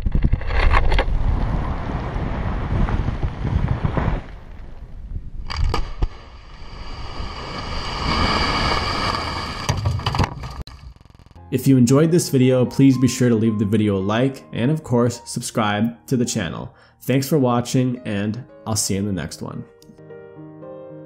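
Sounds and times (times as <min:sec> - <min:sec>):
rush of falling rock: 0:00.0 - 0:10.6.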